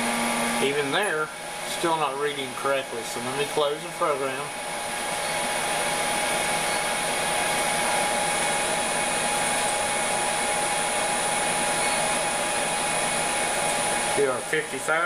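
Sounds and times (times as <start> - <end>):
small motor whirring: 4.8 - 14.2.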